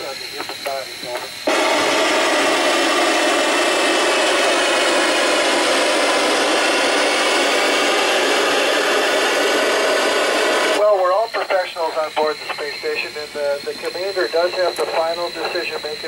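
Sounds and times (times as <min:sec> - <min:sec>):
radio voice transmissions: 0:00.0 - 0:01.4, 0:10.8 - 0:16.0
radio static hiss: 0:00.0 - 0:16.0.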